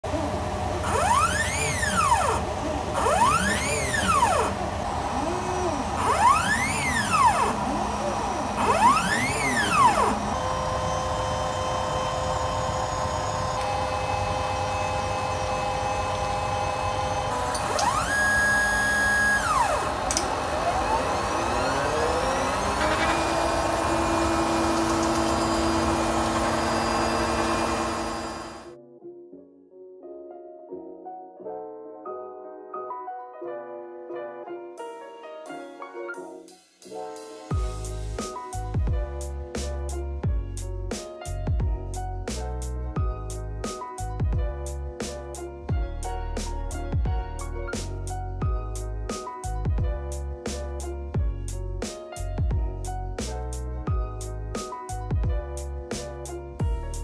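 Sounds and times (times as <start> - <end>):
stepper motors whining: 0.1 - 28.7
whirring noise: 0.1 - 28.8.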